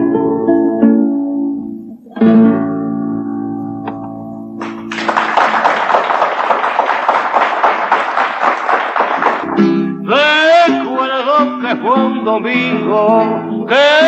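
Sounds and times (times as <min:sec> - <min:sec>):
classical guitar chord: 0:00.0 - 0:04.9, 0:09.4 - 0:13.8
audience applause: 0:04.6 - 0:09.8.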